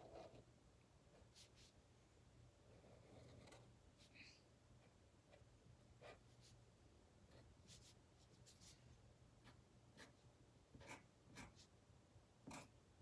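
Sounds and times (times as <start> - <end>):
marker scratching on paper: 1.1 - 1.8, 6.0 - 6.6, 7.3 - 8.8, 9.4 - 10.2, 10.8 - 11.7, 12.4 - 12.7.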